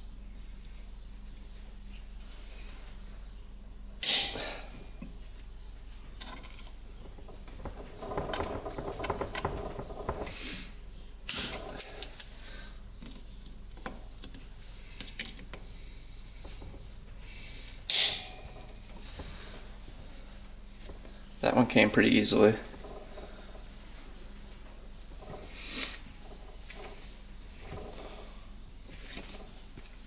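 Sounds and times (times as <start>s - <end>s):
rattly scraping: 6.2s - 10.6s, 20.9s - 29.7s.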